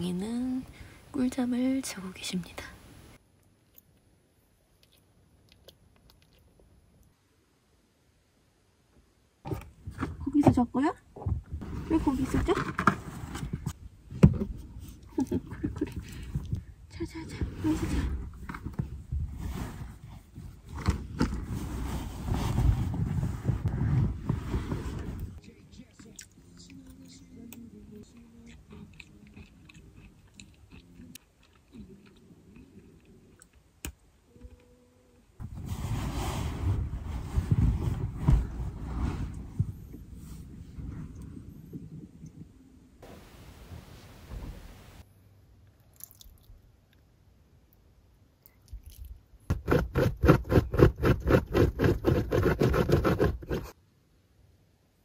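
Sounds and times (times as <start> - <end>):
crunchy biscuit being chewed: 28.1 - 33.6
faint rustles: 35.4 - 45.0.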